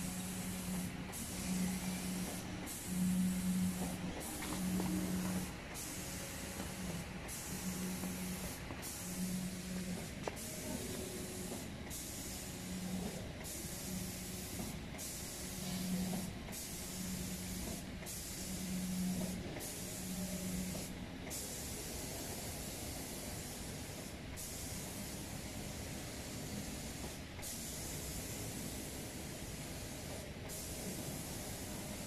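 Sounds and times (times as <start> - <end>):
spray gun hissing: 0.0 - 19.1, 27.5 - 32.0.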